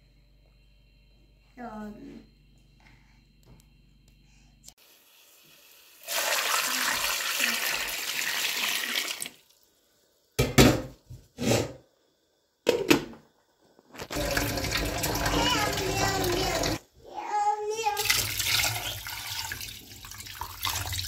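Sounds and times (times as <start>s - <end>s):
tap water pouring into pot: 5.5s - 9.6s, 14.1s - 16.8s, 18.0s - 21.0s.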